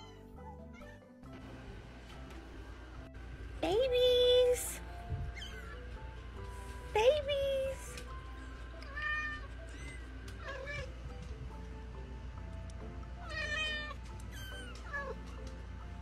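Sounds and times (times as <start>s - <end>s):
kittens mewing: 5.2s - 6.0s, 8.8s - 11.0s.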